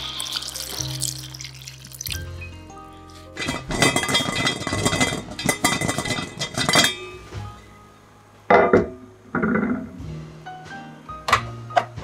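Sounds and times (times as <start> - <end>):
soft background music: 0.0 - 12.0
kitchenware clattering and clinking: 0.2 - 2.3, 3.3 - 7.2, 8.5 - 9.8.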